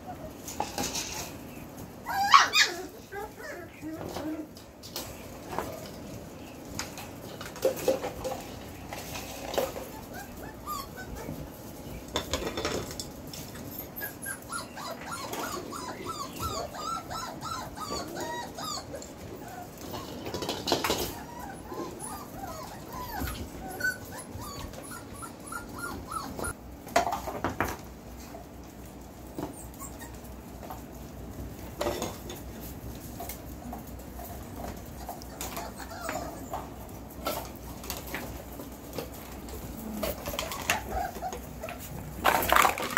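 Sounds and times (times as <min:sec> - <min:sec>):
puppies whining and yipping: 0:00.0 - 0:04.6, 0:07.6 - 0:12.1, 0:12.8 - 0:26.6, 0:29.3 - 0:30.7, 0:34.2 - 0:42.9.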